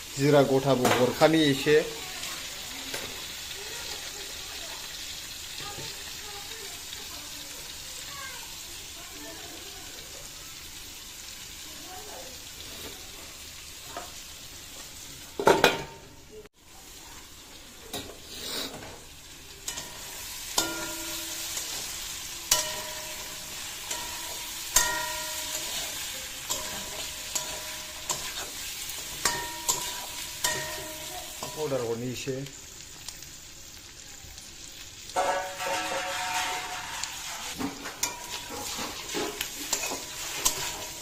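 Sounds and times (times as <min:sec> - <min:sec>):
food sizzling in oil: 0:00.0 - 0:41.0
spatula knocking and scraping wok: 0:17.9 - 0:31.8, 0:35.2 - 0:41.0.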